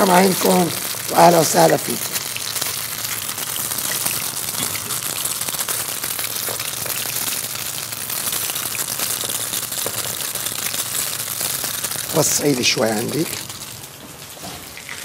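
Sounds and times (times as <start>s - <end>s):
food sizzling in a pan: 0.0s - 15.0s.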